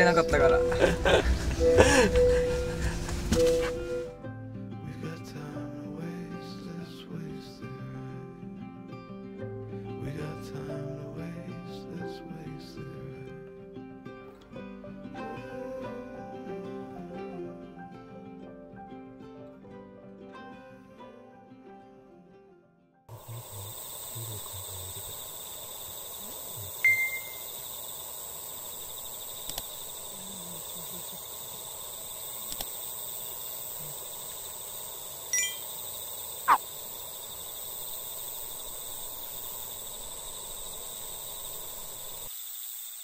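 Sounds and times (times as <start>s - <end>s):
insect chorus drone: 0.0s - 13.5s, 14.6s - 17.9s, 23.1s - 43.0s
downward-sweeping chirp: 23.3s - 29.4s
brief tones and clicks: 26.8s - 27.4s, 35.4s - 35.6s.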